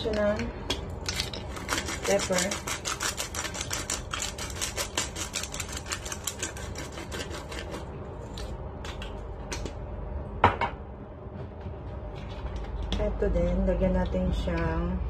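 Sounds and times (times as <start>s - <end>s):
pepper grinder clicking: 1.1s - 7.3s.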